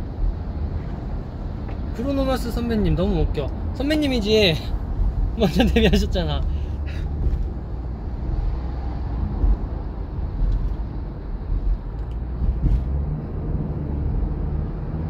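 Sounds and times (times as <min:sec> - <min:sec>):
car cabin road rumble: 0:00.0 - 0:15.0.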